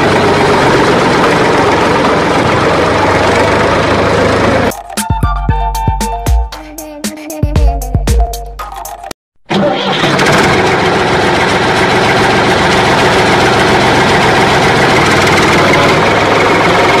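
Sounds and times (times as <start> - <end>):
vehicle engine idling: 0.0 - 4.8, 10.4 - 17.0
music: 4.7 - 9.2.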